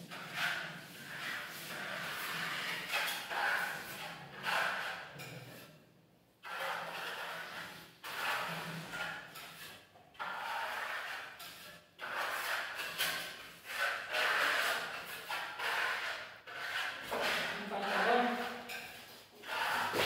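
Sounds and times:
trowel scraping plaster wall: 0.0s - 5.8s, 6.4s - 20.0s.

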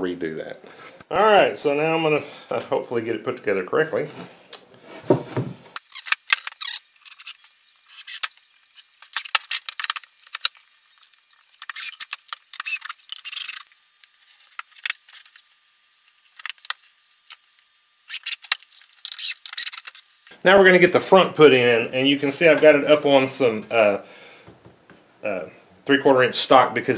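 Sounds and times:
wooden boards knocking and scraping: 5.0s - 5.6s.

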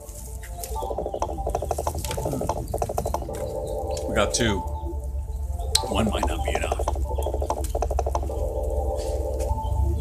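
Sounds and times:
steady droning tone: 0.6s - 10.0s
rapid ratchet-like clicking: 1.0s - 3.4s, 6.2s - 8.5s.

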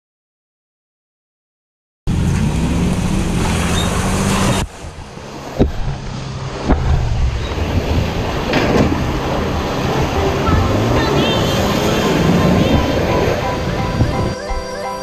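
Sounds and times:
pickup truck engine running: 2.1s - 14.4s
wind on microphone: 4.4s - 14.8s
sharp knocks: 5.6s - 6.0s.

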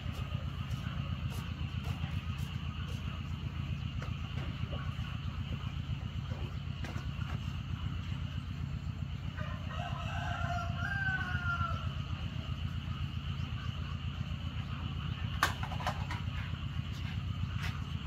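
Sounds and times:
steady low hum: 0.0s - 18.0s
rooster crowing: 9.3s - 12.2s.

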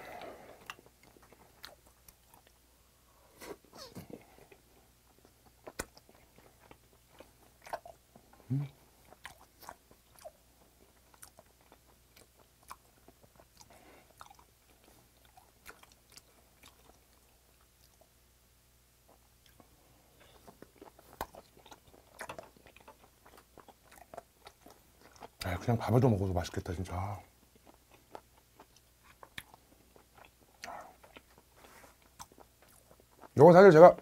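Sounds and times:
mouth chewing wet clicks: 4.5s - 18.1s, 19.4s - 25.6s, 27.3s - 33.4s.

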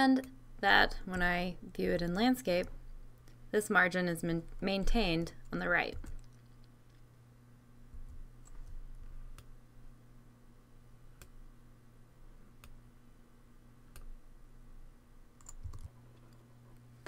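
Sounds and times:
low steady hum: 0.0s - 17.0s
computer mouse clicks: 15.4s - 16.4s.

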